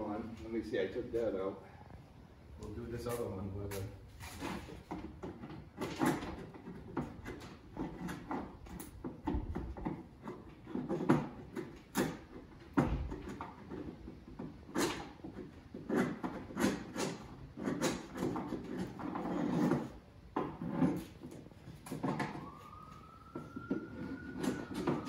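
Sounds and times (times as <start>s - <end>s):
chisel scraping putty: 13.1s - 22.2s.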